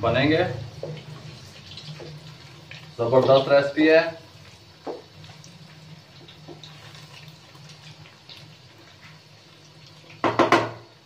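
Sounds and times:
spring rolls deep-frying in oil: 0.0s - 11.0s
spatula turning food: 0.6s - 3.7s.

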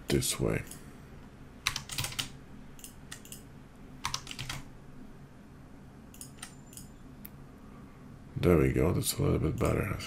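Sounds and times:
keyboard keystroke clicks: 4.0s - 4.6s.

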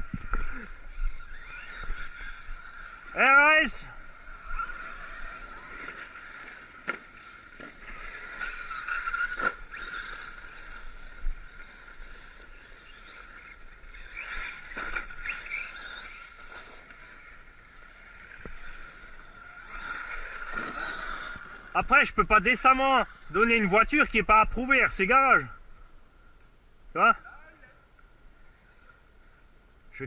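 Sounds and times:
high-pitched electric motor whine: 0.0s - 24.2s
toy cars knocking on ground: 5.4s - 17.3s, 18.0s - 21.6s.

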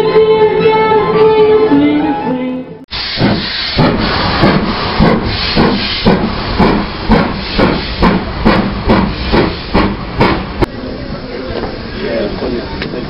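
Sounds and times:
steam locomotive chuffing: 2.9s - 13.0s.

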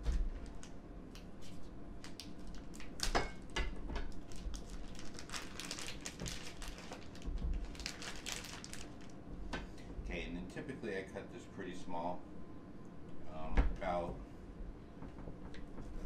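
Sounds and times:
plastic package crinkling: 2.0s - 3.1s, 4.1s - 9.2s.

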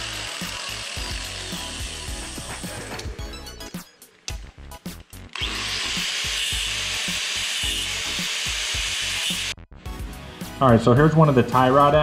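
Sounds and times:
angle grinder grinding metal: 0.0s - 3.2s, 4.0s - 9.6s.

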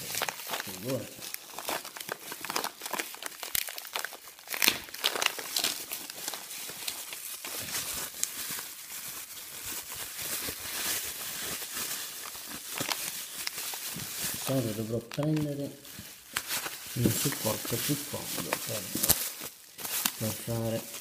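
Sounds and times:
bubble wrap crackling: 0.0s - 21.0s.

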